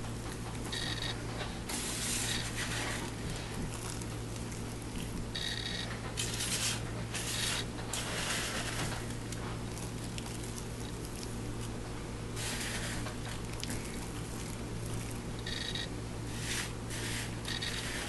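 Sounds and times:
coconut flakes rustling and pattering: 1.9 - 5.4, 6.2 - 15.4.

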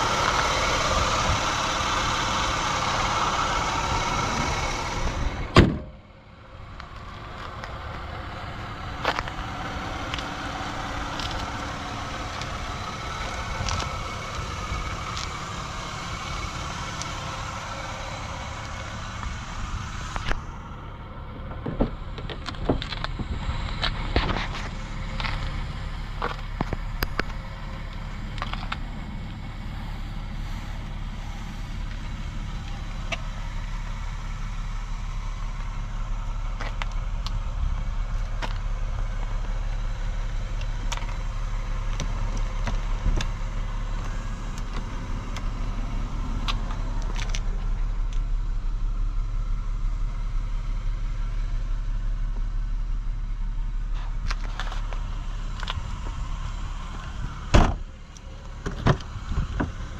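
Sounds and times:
car engine running: 0.0 - 59.9
loud thump: 5.5 - 6.0, 57.5 - 57.8.

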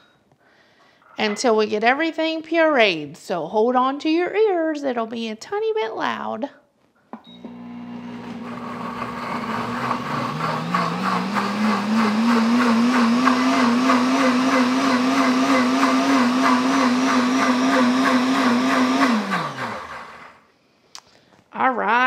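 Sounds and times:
blender motor running: 7.3 - 20.4.

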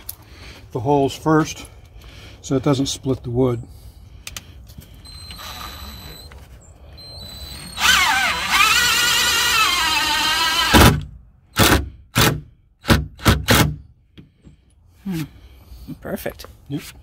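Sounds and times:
cordless drill boring into wood: 5.1 - 5.9, 7.0 - 11.0.

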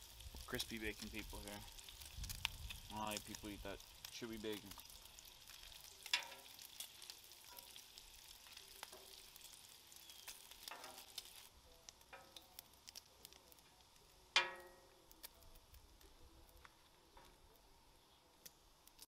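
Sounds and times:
bacon sizzling and crackling: 0.0 - 19.0
tongs clanking on griddle: 5.6 - 7.8, 8.4 - 9.3, 10.1 - 11.4, 12.0 - 12.6, 14.4 - 14.9.

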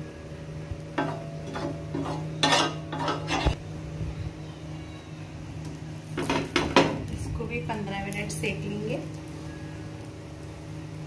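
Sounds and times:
low steady hum: 0.0 - 11.0
metal utensil scraping griddle: 1.0 - 3.6.

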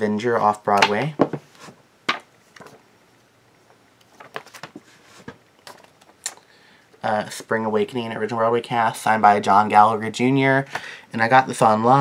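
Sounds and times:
paper rustling: 4.1 - 6.1.

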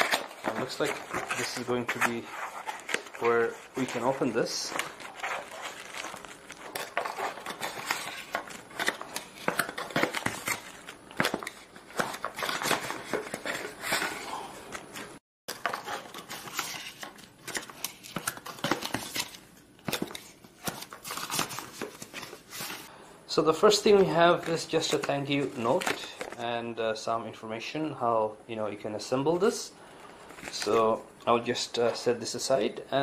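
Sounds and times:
plastic and tissue paper crinkling: 0.0 - 15.0
cardboard flaps scraping: 0.0 - 17.1.

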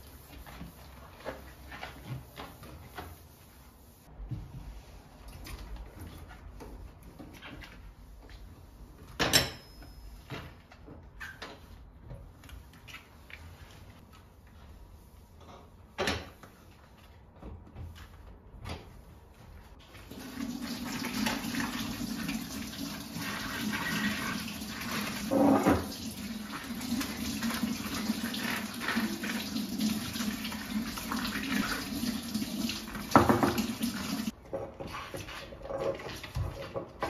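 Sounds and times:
tap running into sink: 33.0 - 34.3.

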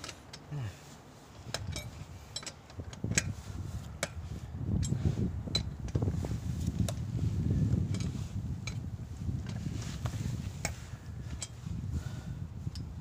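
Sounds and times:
lug wrench clinking: 1.4 - 4.2.

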